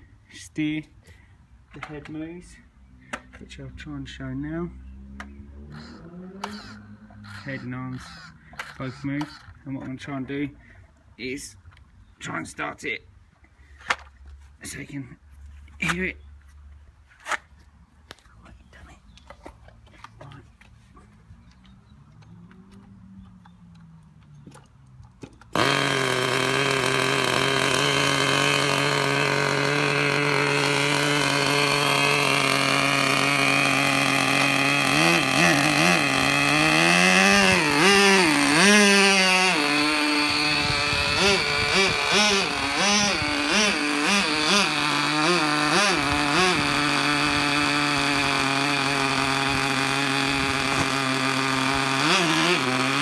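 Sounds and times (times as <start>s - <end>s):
model engine starting and revving: 2.9s - 10.2s, 21.4s - 53.0s.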